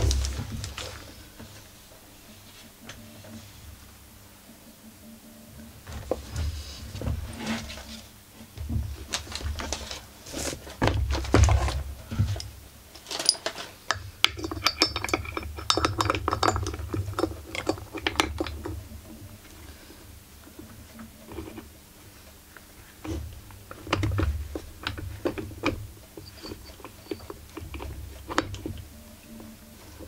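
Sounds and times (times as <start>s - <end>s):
metal tools clinking and rattling: 12.3s - 18.8s, 26.2s - 27.9s.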